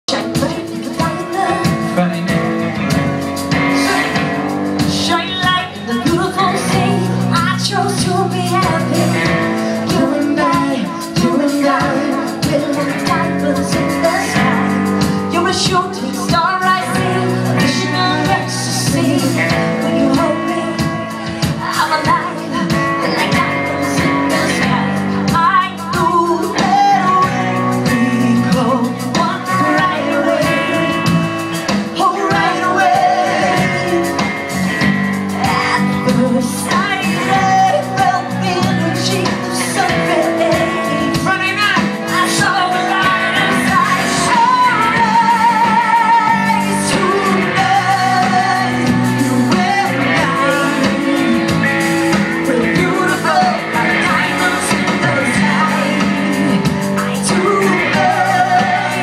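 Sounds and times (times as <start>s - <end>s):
drum kit: 0.0s - 59.0s
electric guitar: 0.0s - 59.0s
woman singing: 0.1s - 2.0s, 2.7s - 59.0s.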